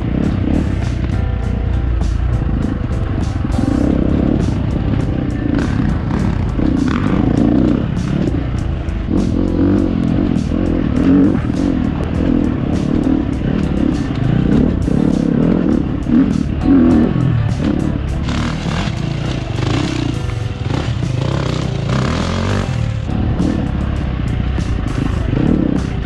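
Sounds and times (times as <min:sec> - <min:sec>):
dirt bike engine revving: 0:00.0 - 0:26.0
music with steady beat: 0:00.0 - 0:26.0.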